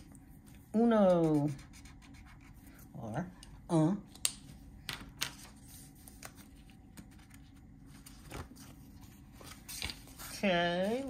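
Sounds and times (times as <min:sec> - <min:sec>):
paper pages rustling: 0:05.0 - 0:11.0.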